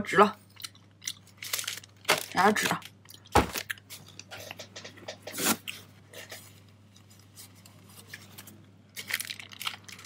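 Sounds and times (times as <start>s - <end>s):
paper wrapper rustling: 1.4s - 4.6s, 6.4s - 10.0s.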